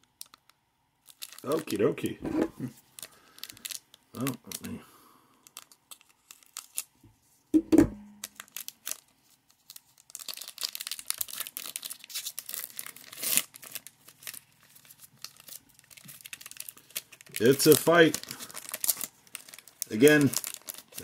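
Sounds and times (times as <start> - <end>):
foil wrapper tearing and crinkling: 0.0 - 1.8, 2.8 - 4.8, 5.4 - 7.0, 8.1 - 21.0
loud thump: 7.6 - 8.1.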